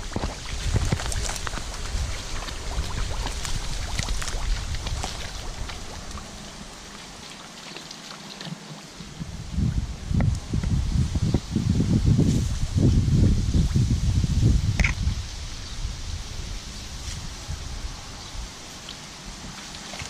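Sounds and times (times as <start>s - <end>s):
dog splashing in shallow water: 0.0s - 8.9s, 18.8s - 20.0s.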